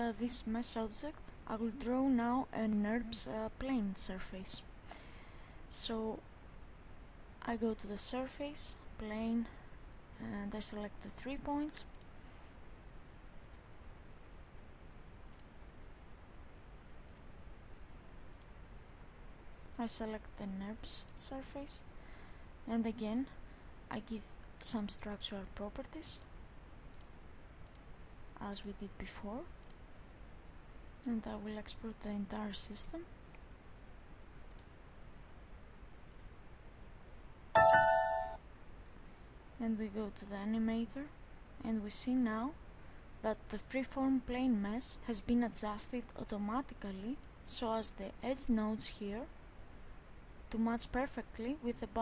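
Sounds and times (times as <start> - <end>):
faint computer mouse clicks: 11.9 - 12.1, 12.8 - 13.7, 15.3 - 15.5, 18.3 - 18.5, 26.9 - 27.9, 29.6 - 29.8, 34.5 - 34.7, 36.1 - 36.3
computer alert chime: 37.6 - 38.4.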